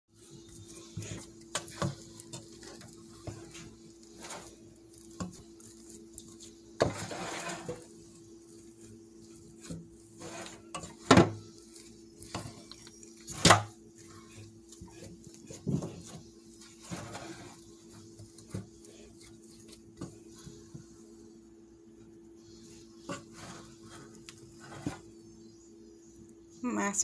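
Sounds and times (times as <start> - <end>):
spoon mashing potatoes in pot: 0.1 - 21.0.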